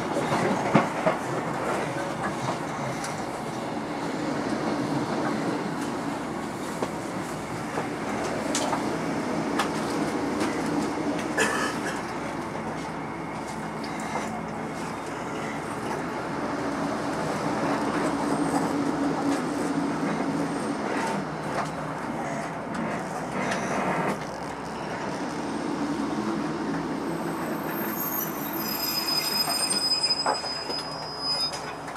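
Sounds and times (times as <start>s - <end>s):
train rumbling along track: 0.0s - 31.9s
high brake squeals: 27.1s - 31.9s.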